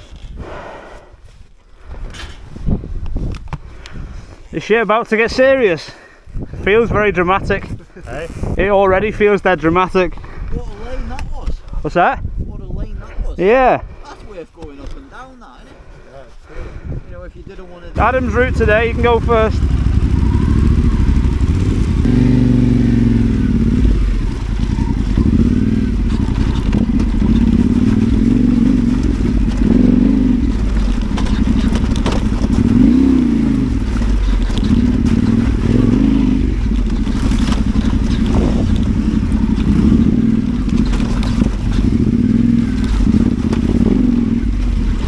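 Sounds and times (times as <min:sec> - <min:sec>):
motorcycle engine revving: 0:18.0 - 0:45.0
clatters and knocks: 0:25.3 - 0:32.8.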